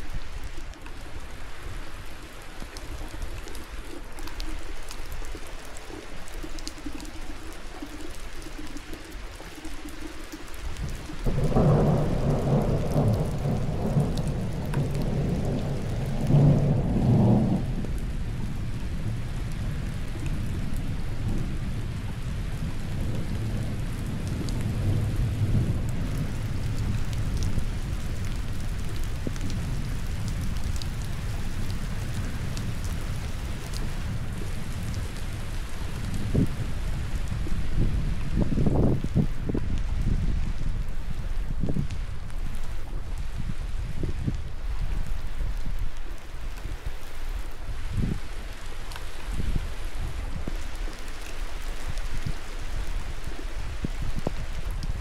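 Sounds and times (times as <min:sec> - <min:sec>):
steady rainfall: 0:00.0 - 0:55.0
thunder rumbling: 0:10.8 - 0:42.3.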